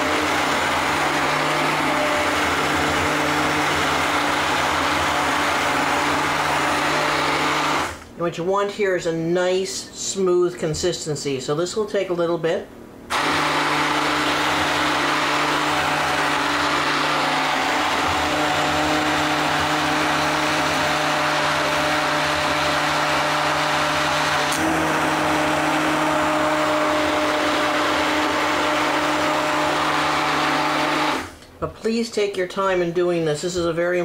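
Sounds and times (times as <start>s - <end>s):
immersion blender motor hum: 0.0s - 8.1s, 13.1s - 31.4s
blender click: 13.1s - 31.5s.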